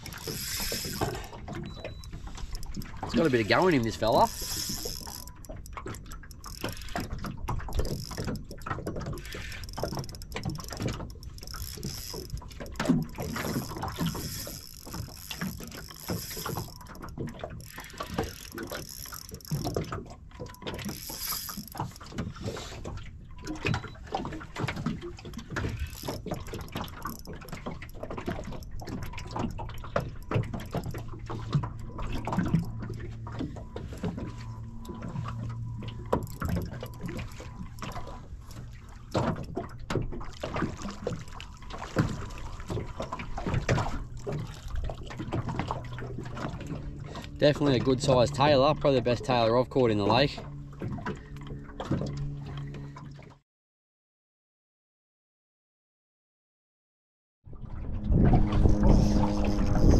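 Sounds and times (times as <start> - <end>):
knocks and splashes: 0.0 - 53.4
water slapping boat hull: 0.0 - 53.4, 57.5 - 59.9
wind: 0.0 - 53.4, 57.4 - 59.9
low steady hum: 25.4 - 53.2, 57.6 - 59.9.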